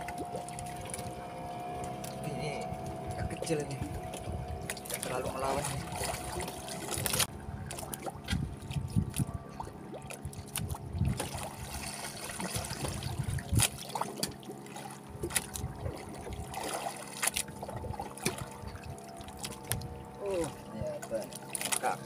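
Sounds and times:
water lapping against boat hull: 0:00.0 - 0:22.0.

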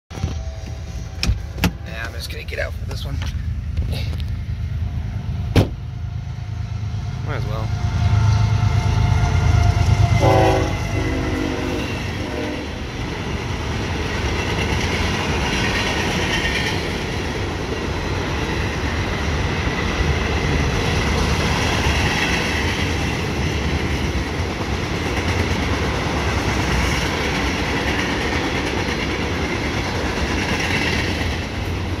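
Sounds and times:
diesel locomotives rumbling: 0:00.1 - 0:32.0
train wheels on rail: 0:00.1 - 0:32.0
train horn: 0:08.1 - 0:12.9.

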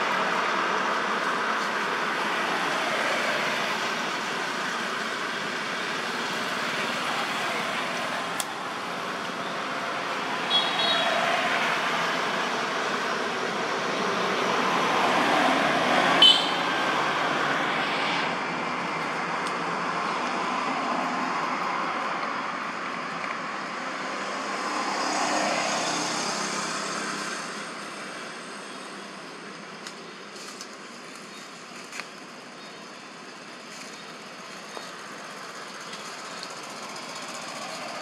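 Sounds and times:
outdoor background noise: 0:00.0 - 0:38.0.

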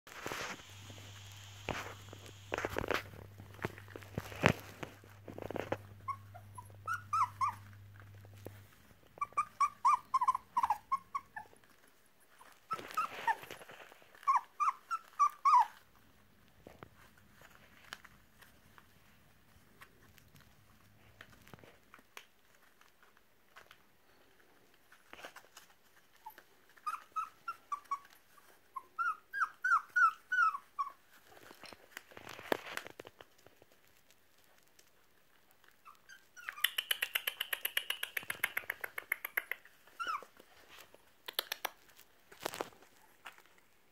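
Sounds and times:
puppies scuffling on pad: 0:00.1 - 0:36.6, 0:39.6 - 0:43.9
puppies yelping and squealing: 0:05.5 - 0:15.8, 0:26.1 - 0:31.6, 0:35.6 - 0:40.8.

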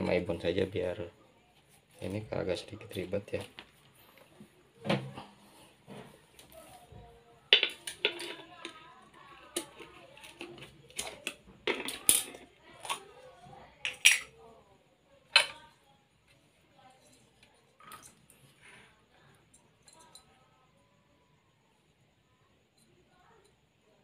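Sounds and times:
metal tin lid clinking: 0:13.8 - 0:14.4.

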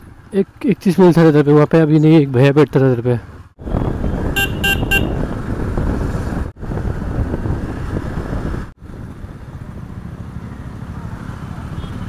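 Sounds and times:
motorcycle running: 0:03.3 - 0:12.0
wind buffeting microphone: 0:03.6 - 0:10.0.

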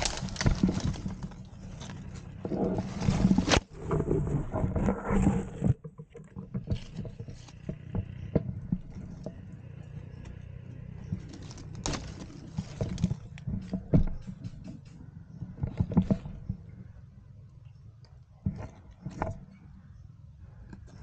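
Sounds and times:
dry leaves and twigs crackling: 0:00.0 - 0:04.6, 0:06.2 - 0:16.9
low rumble of microphone noise: 0:00.0 - 0:21.0.

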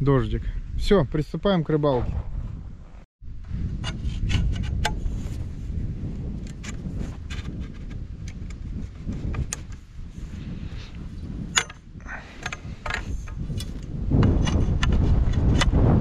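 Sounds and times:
wind buffeting microphone: 0:00.0 - 0:16.0
metal poles clinking: 0:11.5 - 0:13.8.

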